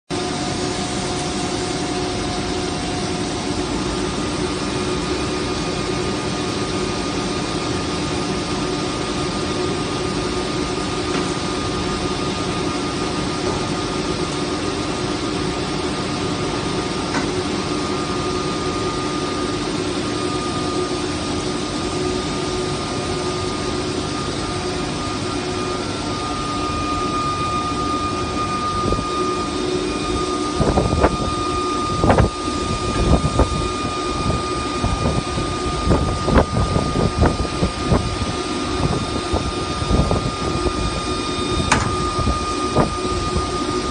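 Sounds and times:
constant hum tones: 0.1 - 43.9
extrusion machinery drone: 0.1 - 43.9.

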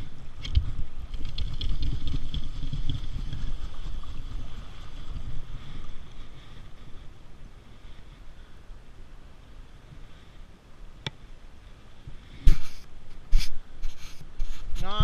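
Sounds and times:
wind buffeting microphone: 0.0 - 7.7.

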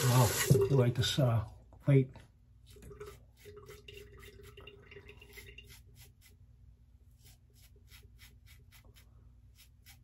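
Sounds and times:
razor scraping stubble: 5.6 - 10.0.

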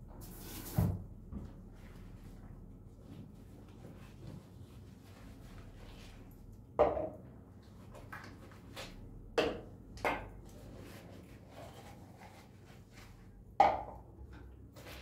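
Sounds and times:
containers knocking on stone countertop: 6.8 - 7.2.

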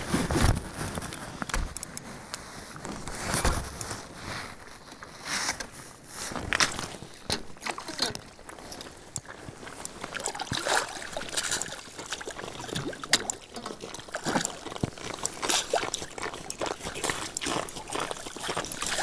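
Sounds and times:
ice crackling and clicking: 6.4 - 19.0
slush and ice water splashing: 6.5 - 19.0.

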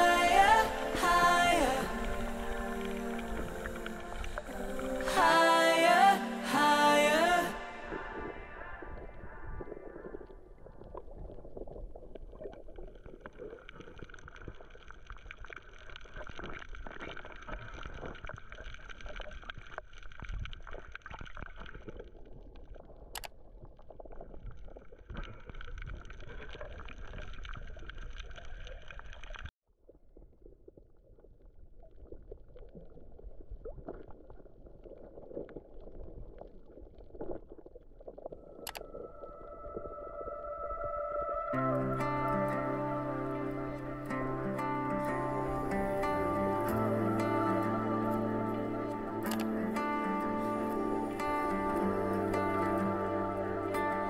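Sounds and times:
bubbling water: 0.0 - 54.0
muffled underwater water movement: 0.0 - 54.0
faint steady whine: 38.3 - 54.0.

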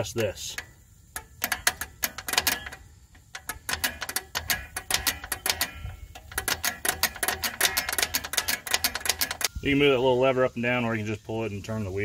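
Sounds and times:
brake adjuster ratcheting clicks: 0.0 - 9.5.

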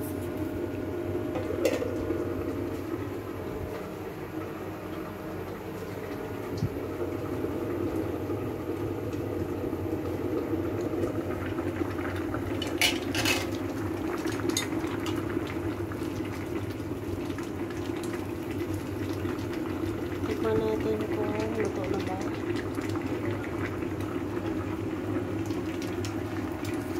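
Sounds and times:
pot of water boiling: 0.0 - 26.9
utensil clattering against pot: 1.4 - 1.9, 12.7 - 13.5.

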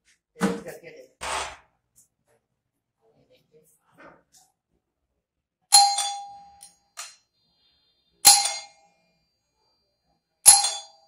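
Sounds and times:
ding-dong doorbell ringing: 5.7 - 6.8, 8.2 - 8.9, 10.4 - 11.0.

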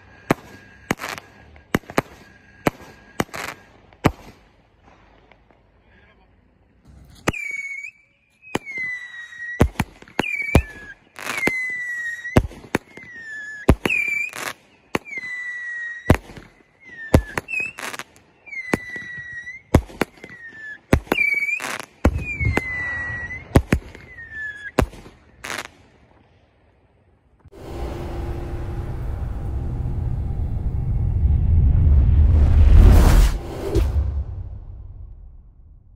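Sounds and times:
firework whistles: 0.0 - 4.5, 7.1 - 25.8
firework bangs: 0.0 - 5.7, 6.8 - 25.9.

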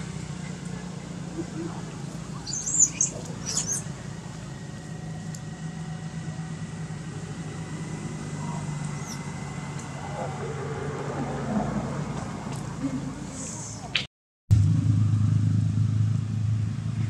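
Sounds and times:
steady low drone: 0.0 - 13.6, 14.5 - 17.0
infant monkey squeaking: 2.3 - 4.0, 8.4 - 9.3.

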